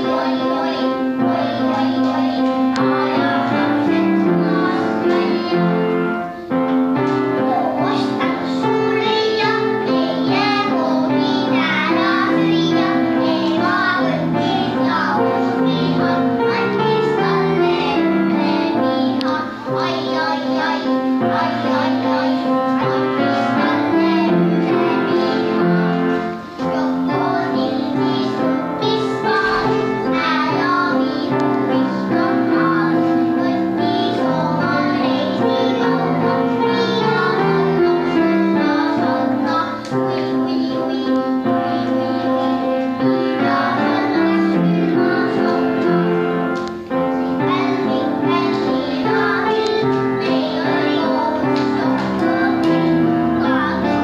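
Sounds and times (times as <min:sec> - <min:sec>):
children singing: 0:00.0 - 0:54.0
instrumental accompaniment: 0:00.0 - 0:54.0.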